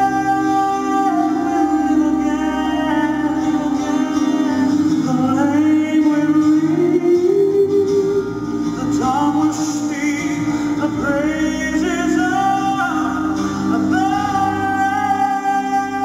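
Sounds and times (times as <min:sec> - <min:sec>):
backing music: 0:00.0 - 0:16.0
man singing: 0:00.0 - 0:16.0.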